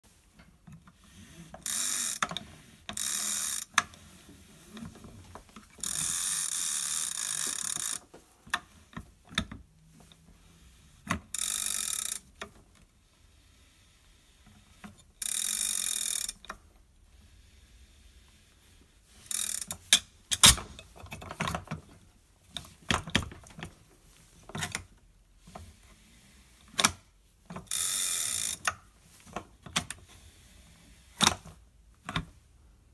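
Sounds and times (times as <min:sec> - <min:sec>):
rope rasping through pulley: 0:01.0 - 0:08.2.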